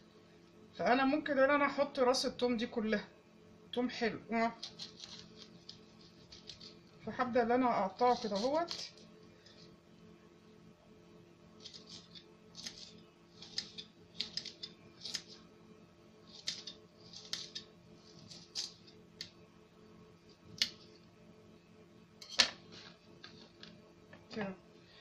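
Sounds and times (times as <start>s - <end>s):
knife slicing garlic on stone: 4.6s - 6.8s, 8.0s - 9.0s, 11.6s - 15.4s.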